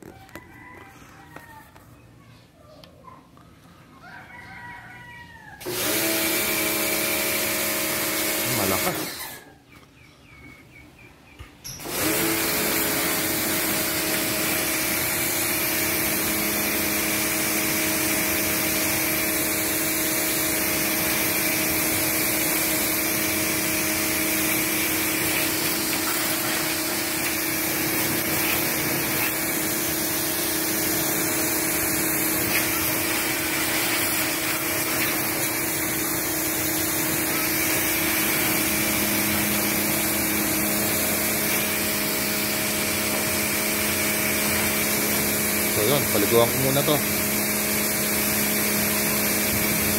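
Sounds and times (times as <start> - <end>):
pressure washer motor humming: 5.6 - 9.4, 11.7 - 49.9
water jet spraying hiss: 11.9 - 49.9.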